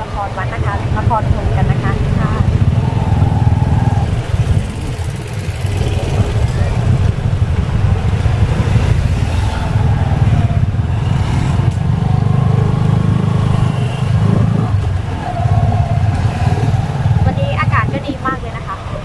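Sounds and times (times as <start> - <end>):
motorbike low rumble: 0.0 - 19.0
passing motorbikes: 0.0 - 19.0.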